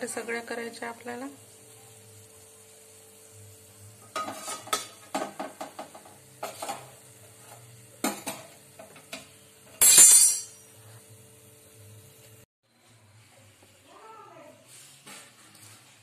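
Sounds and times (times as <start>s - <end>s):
metal spoon scraping steel pan: 4.1s - 4.9s.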